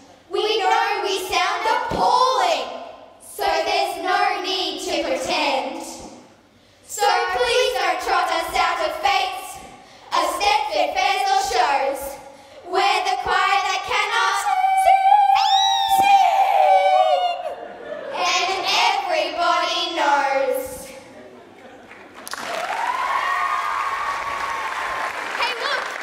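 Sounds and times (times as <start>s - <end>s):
girls singing together: 0.0s - 6.3s, 6.9s - 21.1s.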